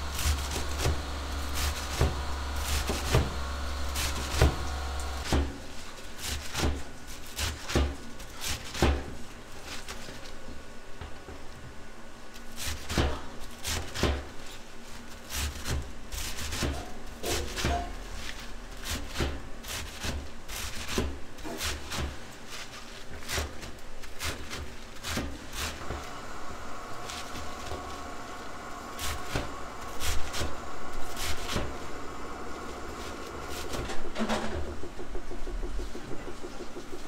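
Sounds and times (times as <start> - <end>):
knife chopping on wooden board: 0.1 - 5.6.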